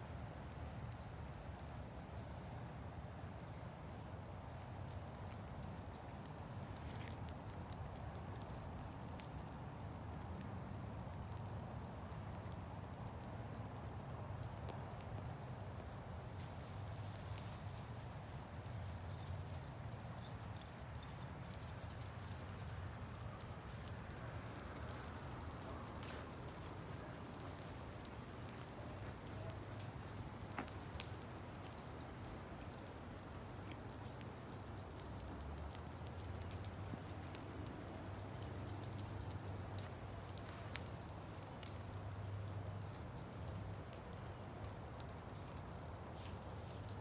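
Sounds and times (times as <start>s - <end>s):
wet snow and sleet pattering: 0.0s - 47.0s
light ticks: 7.0s - 10.4s, 14.1s - 47.0s.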